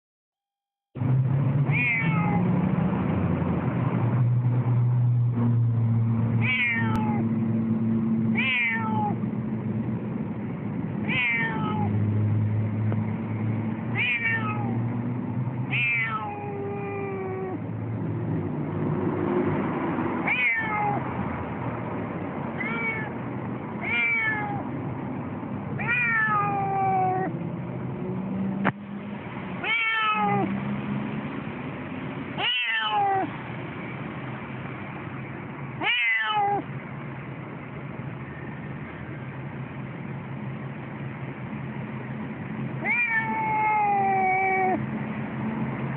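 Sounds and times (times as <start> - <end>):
cat meowing loudly: 1.7 - 2.4, 6.4 - 7.3, 8.3 - 9.2, 11.0 - 11.9, 13.9 - 14.8, 15.7 - 17.6, 20.2 - 21.1, 22.5 - 23.2, 23.8 - 24.7, 25.8 - 27.3, 29.6 - 30.5, 32.4 - 33.3, 35.8 - 36.7, 42.8 - 44.8.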